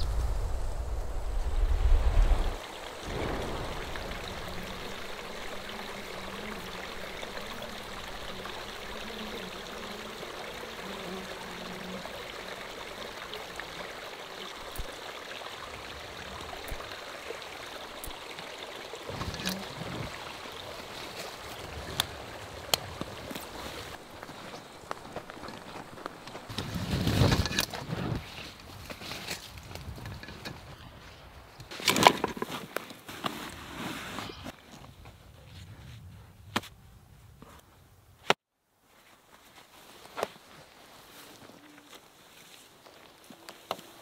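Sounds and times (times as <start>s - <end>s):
stream rushing: 0.0s - 27.7s.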